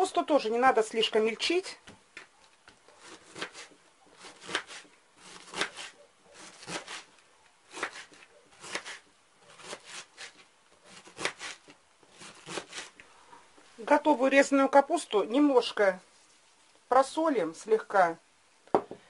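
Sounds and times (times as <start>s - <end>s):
knife slicing cabbage: 2.9s - 13.0s.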